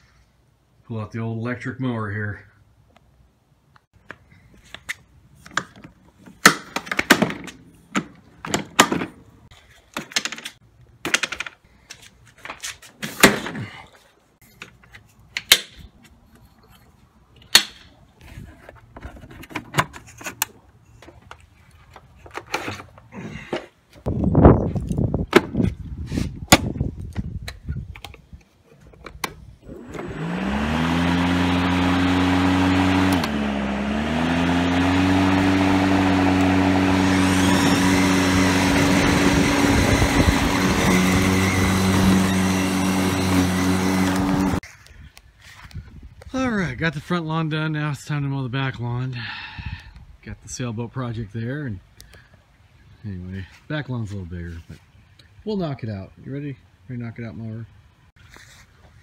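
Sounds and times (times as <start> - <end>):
electric motor whining: 29.6 - 44.6.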